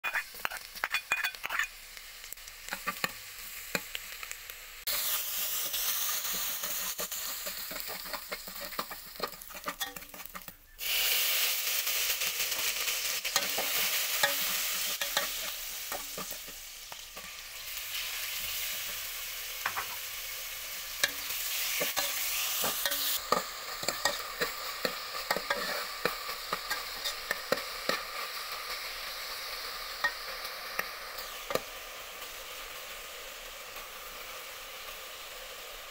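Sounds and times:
food sizzling in hot oil: 0.0 - 35.9
metal spoon scraping pot: 0.1 - 1.7, 7.5 - 10.5, 21.0 - 28.0.

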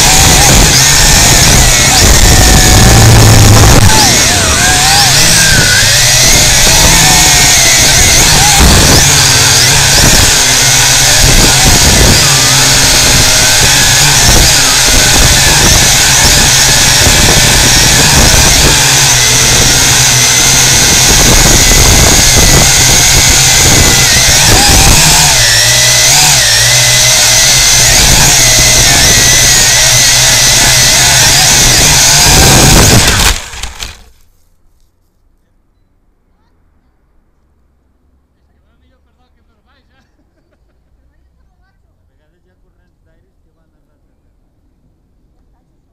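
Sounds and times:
drone propellers whining: 0.0 - 34.1.

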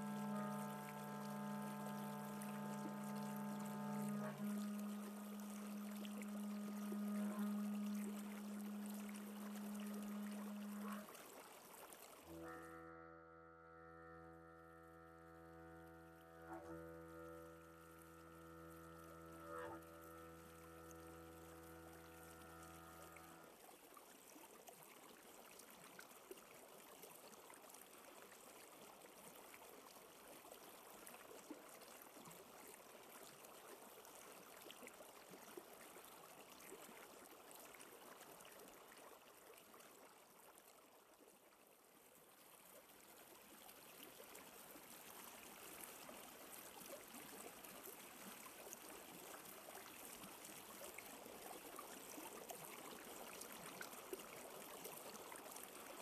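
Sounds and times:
faint steady hiss: 0.0 - 56.0.

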